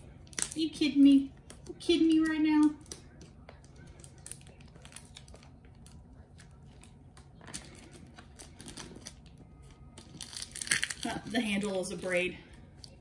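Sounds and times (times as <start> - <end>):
plastic shrink-wrap crinkling: 2.9 - 11.7.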